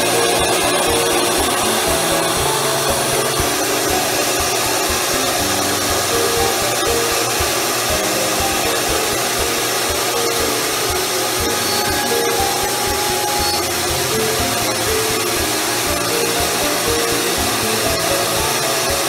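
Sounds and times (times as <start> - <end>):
short electronic tones: 10.2 - 15.0.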